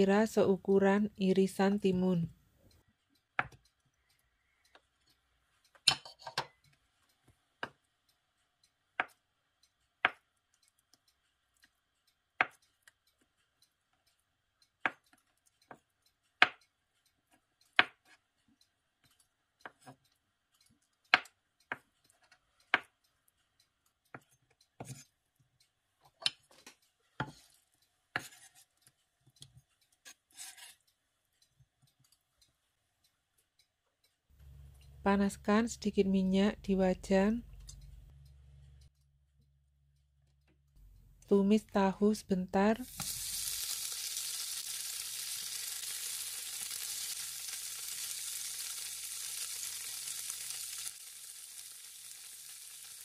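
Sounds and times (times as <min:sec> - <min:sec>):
knife scraping cutting board: 0:28.2 - 0:28.7, 0:30.1 - 0:30.8.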